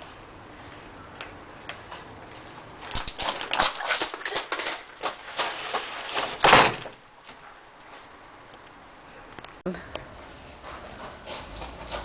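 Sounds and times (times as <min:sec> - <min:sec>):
broom sweeping a doorstep: 0:04.5 - 0:06.5
loud thump: 0:06.4 - 0:07.0.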